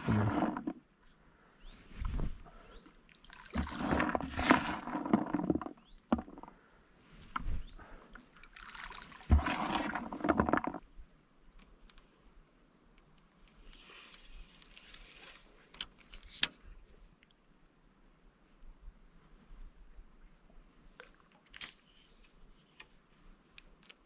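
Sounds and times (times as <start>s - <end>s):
splashing and rustling: 3.1s - 6.4s, 7.4s - 10.9s.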